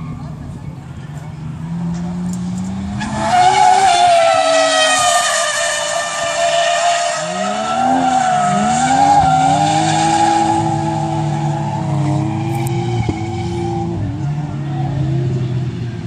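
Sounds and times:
tyres screeching: 0:02.9 - 0:14.2.

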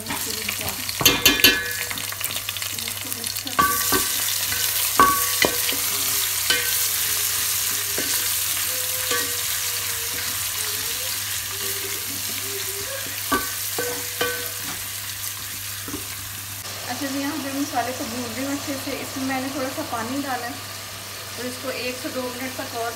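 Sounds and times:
food sizzling in hot oil: 0:00.0 - 0:22.9.

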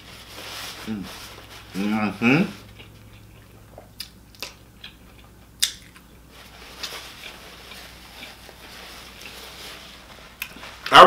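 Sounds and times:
paper napkin rustling: 0:00.0 - 0:02.8, 0:06.3 - 0:10.8
mouth chewing with wet smacks: 0:02.7 - 0:06.1.

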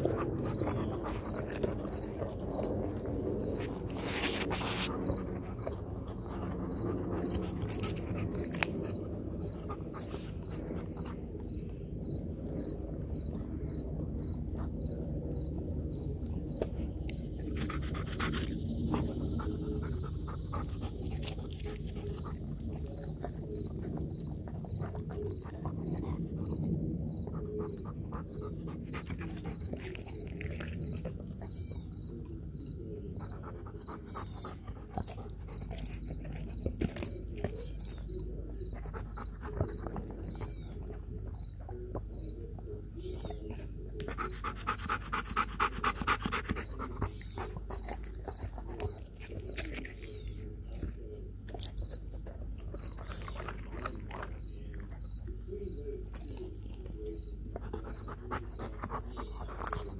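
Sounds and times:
dog chewing and crunching bone: 0:00.0 - 0:59.9
dog panting: 0:00.0 - 0:59.9.

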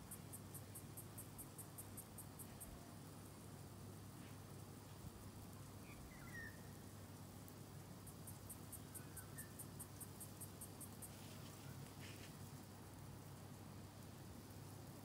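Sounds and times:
insect chirping: 0:00.0 - 0:15.0
faint bird chirps: 0:05.8 - 0:06.7, 0:08.8 - 0:09.7.

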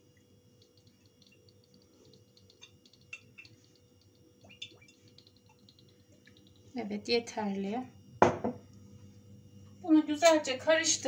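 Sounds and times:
soft ticks of oil pouring: 0:00.0 - 0:06.8
steady low hum: 0:00.0 - 0:11.0.

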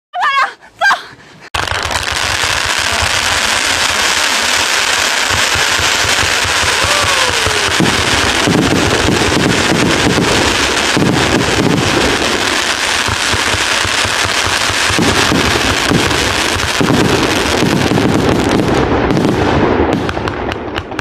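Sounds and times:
firework barrage crackling: 0:01.5 - 0:21.0
falling firework whistle: 0:02.9 - 0:12.0.

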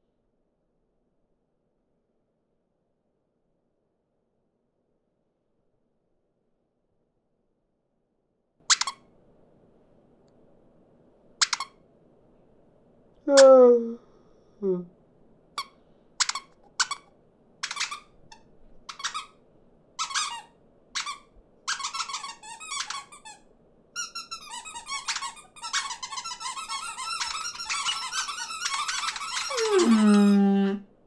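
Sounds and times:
cartoon bird squeaks and chirps: 0:08.7 - 0:09.0, 0:11.4 - 0:11.7, 0:15.6 - 0:18.1, 0:18.9 - 0:19.3, 0:20.0 - 0:23.2, 0:24.0 - 0:30.5.

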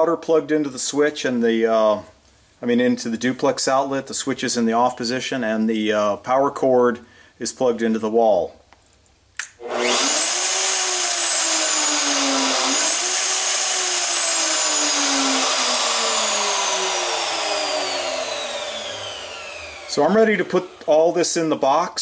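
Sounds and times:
router motor whine: 0:09.6 - 0:21.5.

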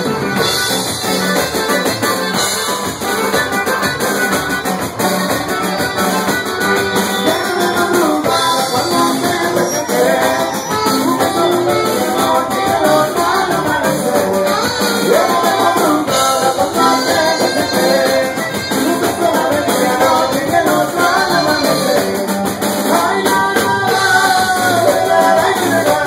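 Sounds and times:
drums: 0:00.0 - 0:26.0
guitar: 0:00.0 - 0:26.0
saxophone: 0:00.0 - 0:26.0
person singing: 0:05.4 - 0:26.0.

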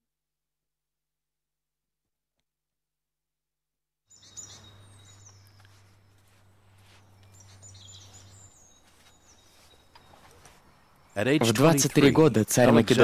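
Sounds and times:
birds chirping: 0:04.1 - 0:13.0.

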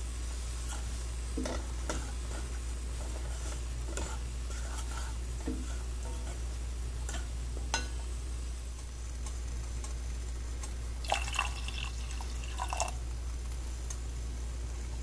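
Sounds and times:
steady low hum: 0:00.0 - 0:15.0
water splashing into a pot: 0:11.0 - 0:13.0.

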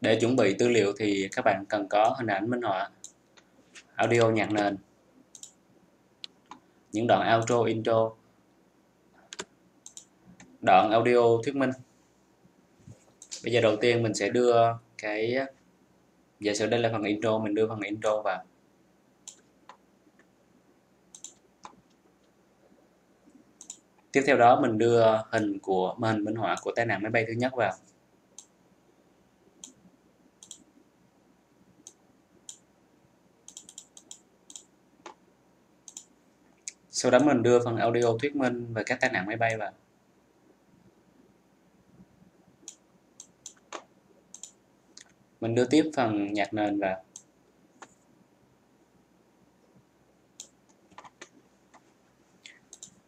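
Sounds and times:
computer mouse clicking: 0:05.3 - 0:05.6, 0:09.3 - 0:10.6, 0:13.1 - 0:13.5, 0:19.2 - 0:20.3, 0:21.1 - 0:22.4, 0:23.6 - 0:23.9, 0:29.6 - 0:29.8, 0:30.4 - 0:30.7, 0:31.8 - 0:32.7, 0:33.4 - 0:35.2, 0:35.8 - 0:36.1, 0:42.6 - 0:45.2, 0:47.1 - 0:48.0, 0:50.4 - 0:53.0.

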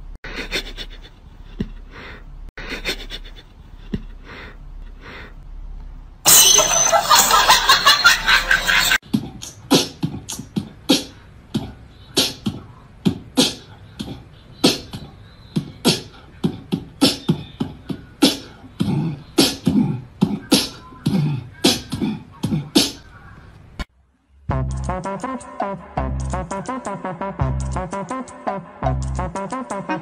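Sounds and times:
sharp percussive hits: 0:06.3 - 0:07.9.

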